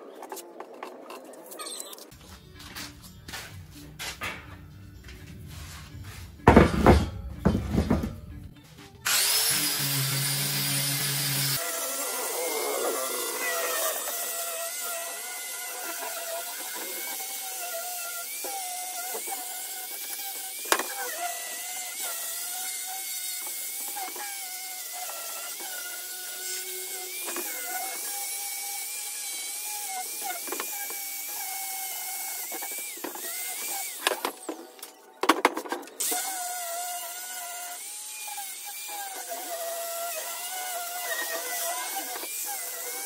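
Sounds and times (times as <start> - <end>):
grinder whine on metal: 9.0 - 35.3, 36.0 - 43.0.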